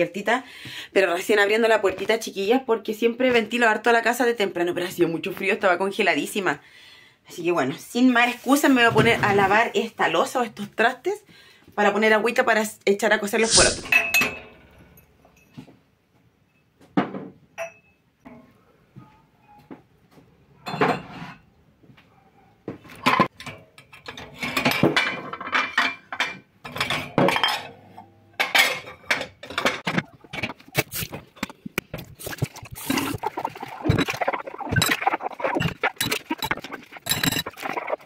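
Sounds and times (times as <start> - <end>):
dishes clattering in a sink: 13.8 - 14.8, 20.6 - 21.4, 22.9 - 31.7.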